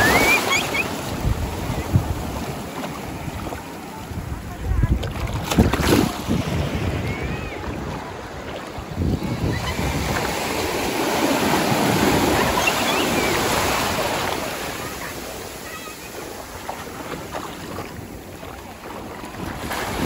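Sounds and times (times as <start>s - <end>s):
surf breaking over shallow water: 0.0s - 20.0s
wind buffeting microphone: 1.1s - 12.6s.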